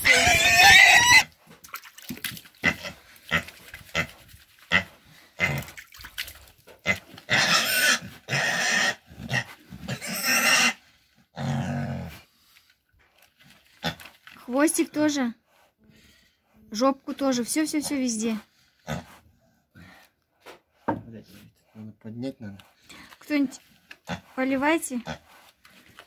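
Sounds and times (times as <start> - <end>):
pig squealing: 0.0 - 1.3, 6.9 - 10.8
pig grunting: 2.6 - 5.8, 6.8 - 12.3, 18.8 - 19.2.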